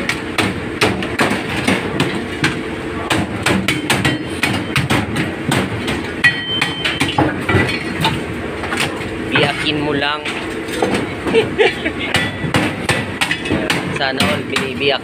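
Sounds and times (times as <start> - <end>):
blade chopping on wooden block: 0.0 - 7.4, 12.1 - 14.9
kitchen hum: 0.0 - 15.0.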